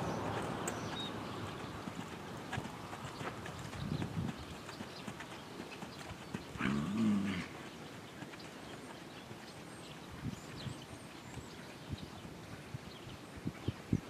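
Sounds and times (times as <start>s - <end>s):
hooves beating in sand: 0.0s - 14.0s
horse groaning: 6.6s - 7.6s.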